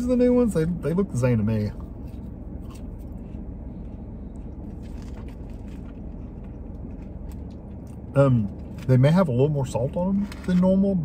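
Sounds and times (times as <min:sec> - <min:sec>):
car engine humming: 0:00.0 - 0:11.0
chewing crispy fries: 0:04.3 - 0:08.9.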